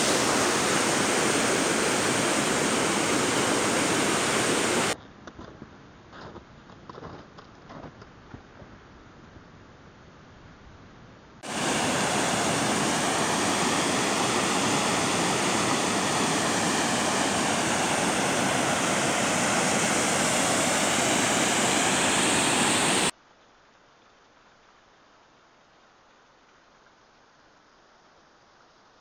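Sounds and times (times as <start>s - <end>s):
creek rushing over boulders: 0.0s - 5.0s, 11.4s - 23.1s.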